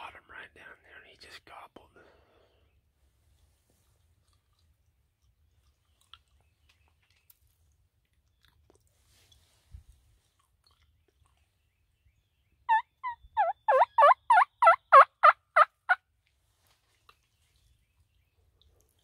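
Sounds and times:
turkey yelps: 0:12.7 - 0:16.0.

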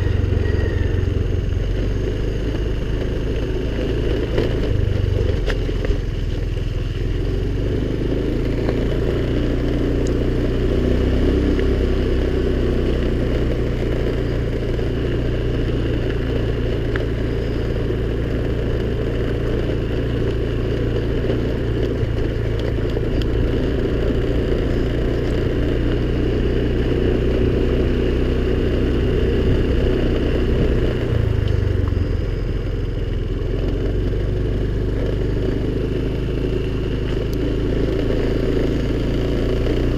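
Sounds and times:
scooter engine running: 0:00.0 - 0:39.9.

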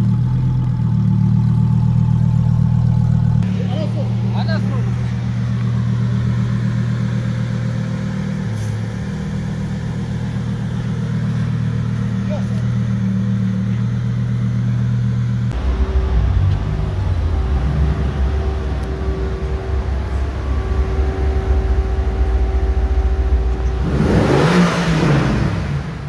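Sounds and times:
car engine idling and revving: 0:00.0 - 0:26.0
sports car engine rolling off: 0:15.5 - 0:26.0.

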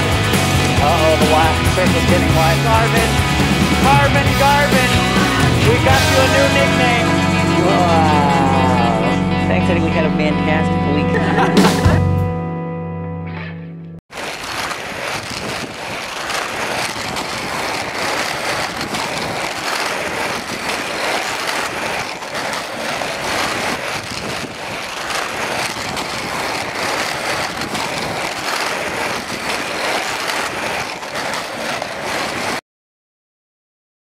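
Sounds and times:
inline skate wheels rolling on asphalt: 0:14.1 - 0:32.6.

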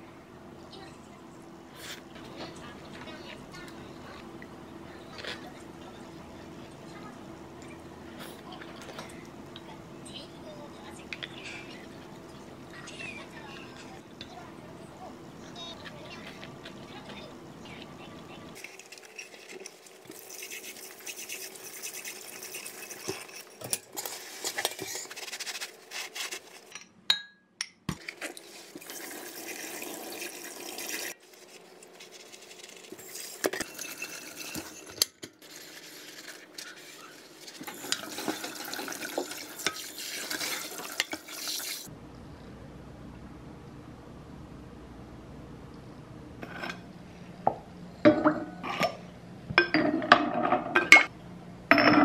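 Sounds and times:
sponge scrubbing dishes: 0:18.6 - 0:26.7, 0:28.0 - 0:41.9
tap water running: 0:28.3 - 0:31.2, 0:37.6 - 0:41.9.

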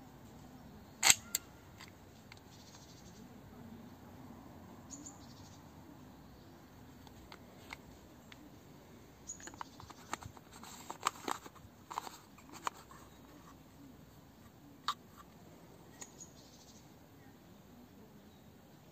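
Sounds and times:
camera lens clicks and taps: 0:09.4 - 0:13.0.

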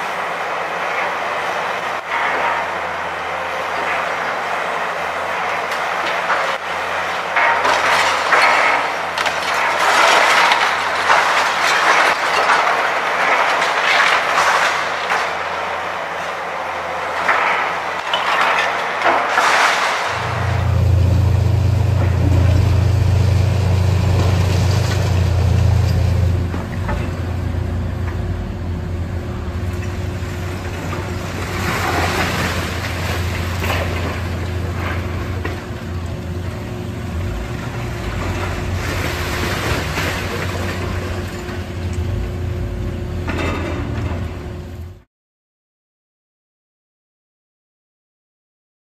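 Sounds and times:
diesel machinery droning: 0:00.0 - 0:11.6, 0:20.0 - 0:45.1
falling debris crashing: 0:03.4 - 0:44.6
excavator tearing into brick: 0:05.5 - 0:15.6, 0:17.1 - 0:27.3, 0:29.8 - 0:44.6
debris crunching and rattling: 0:07.2 - 0:15.7, 0:17.1 - 0:44.8.

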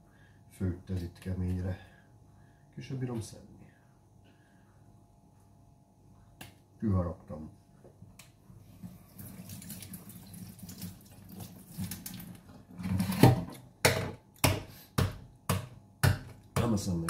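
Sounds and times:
tap running water into sink: 0:09.1 - 0:12.4.

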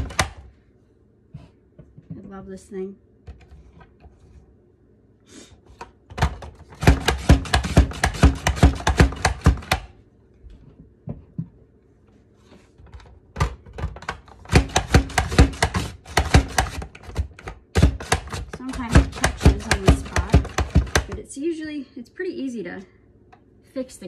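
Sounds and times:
mandoline slicer cutting potatoes: 0:06.7 - 0:09.8, 0:14.4 - 0:21.2.

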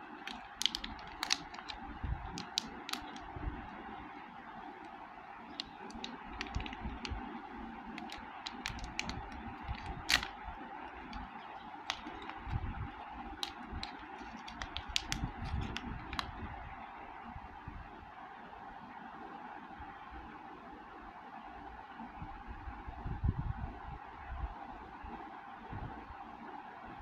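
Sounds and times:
foil bag crinkling: 0:00.1 - 0:03.3, 0:05.5 - 0:07.3, 0:07.9 - 0:12.6, 0:13.2 - 0:16.4.

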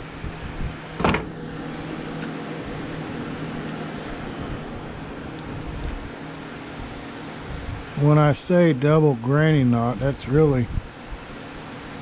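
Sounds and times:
electric fan humming: 0:00.0 - 0:12.0.

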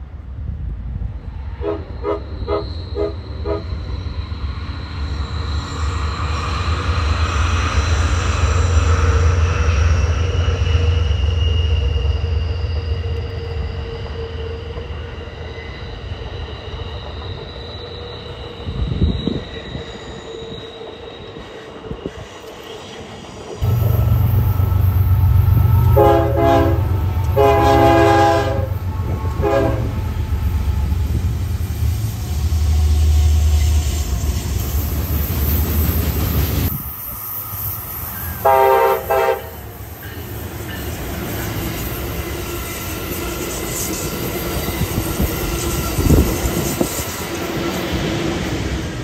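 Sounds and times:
train rumbling past: 0:00.0 - 0:49.0
wheel flanges squealing: 0:01.9 - 0:38.4.

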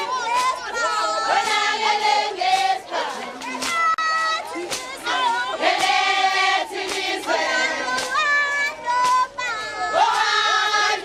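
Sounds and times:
crowd: 0:00.0 - 0:11.0
group of people singing: 0:00.0 - 0:11.0.

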